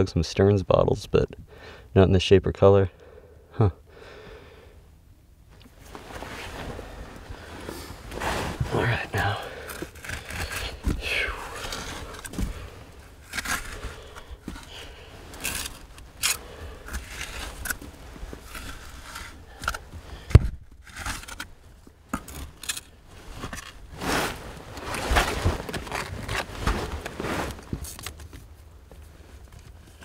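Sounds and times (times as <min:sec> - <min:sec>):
digging and scraping through rubble: 0:05.8 - 0:30.0.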